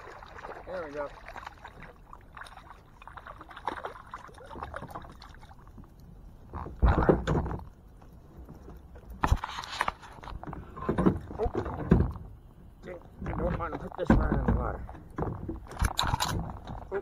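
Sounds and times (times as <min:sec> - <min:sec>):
fish splashing at the surface: 0:00.0 - 0:05.7
bumps against a kayak: 0:06.5 - 0:07.7, 0:09.2 - 0:12.4, 0:13.2 - 0:16.8.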